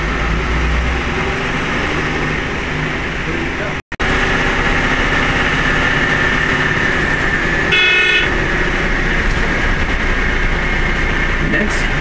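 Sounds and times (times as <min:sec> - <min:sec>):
engine and road noise: 0:00.0 - 0:12.0
short horn blast: 0:07.7 - 0:08.3.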